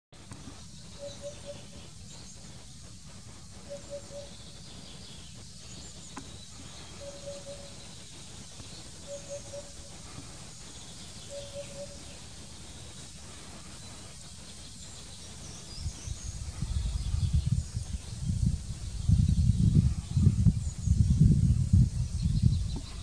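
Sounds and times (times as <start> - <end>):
hoopoe singing: 0.9 - 5.2, 5.8 - 17.3.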